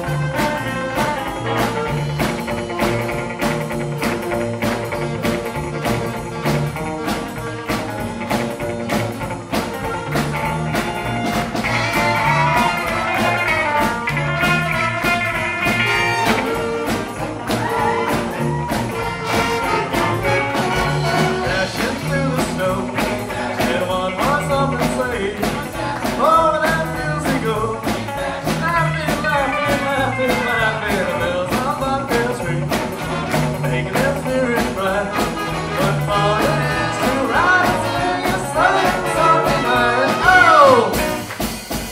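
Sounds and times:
saxophones and brass: 0.0s - 23.7s, 32.7s - 33.9s, 34.8s - 41.9s
drums steady beat: 0.0s - 41.9s
electric guitars: 0.0s - 41.9s
upright bass: 0.0s - 41.9s.

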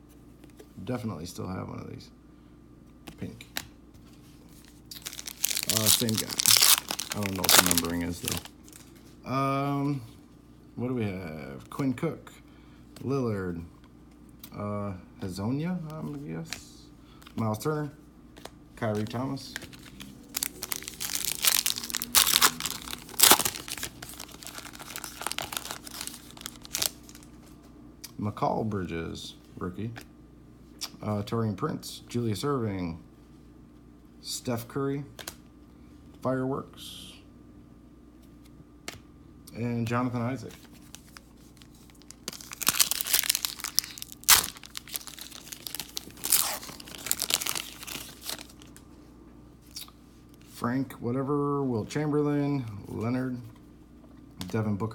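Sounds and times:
foil wrapper tearing and crinkling: 4.9s - 8.8s, 19.6s - 27.3s, 40.8s - 48.8s.

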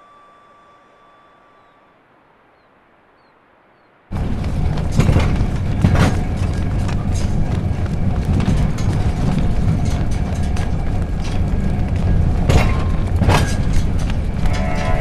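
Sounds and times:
tram rumbling along rails: 4.1s - 15.0s
sharp knocks: 12.4s - 15.0s.

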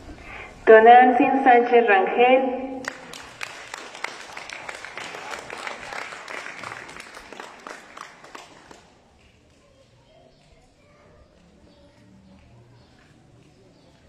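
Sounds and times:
audience applauding: 2.8s - 9.4s.

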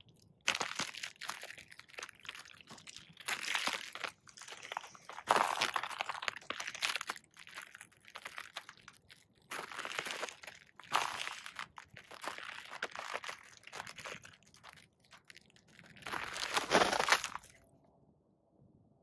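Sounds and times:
ice cracking under boot steps: 0.1s - 17.6s.

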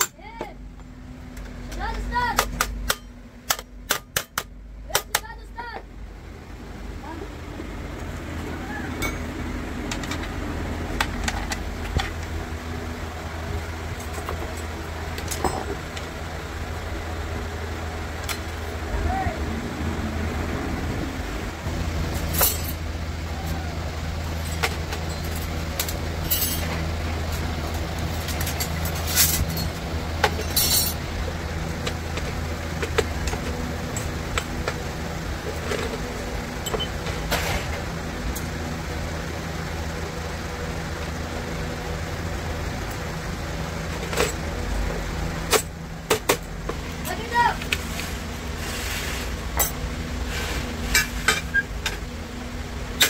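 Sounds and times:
sharp metallic clicks and knocks: 0.0s - 5.4s
low machine hum: 0.0s - 53.0s.

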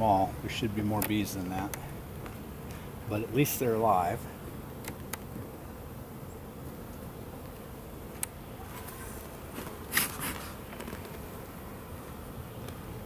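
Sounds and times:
honeybees humming: 0.0s - 13.0s
hive tool prying wooden frames: 4.8s - 5.4s.

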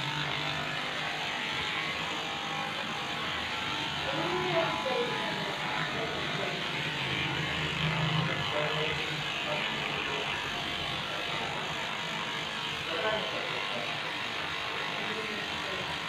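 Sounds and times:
electric clippers running: 0.0s - 16.0s.

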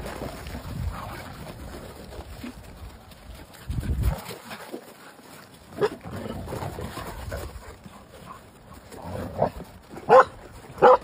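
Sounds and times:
dogs playing rough: 0.0s - 11.0s
dogs giving sharp calls: 9.4s - 11.0s.

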